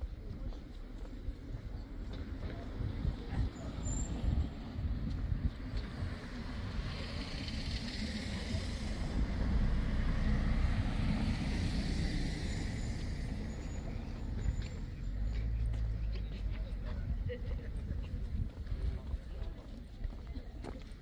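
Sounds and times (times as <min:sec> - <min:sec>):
motor vehicle passing: 0:05.8 - 0:16.1.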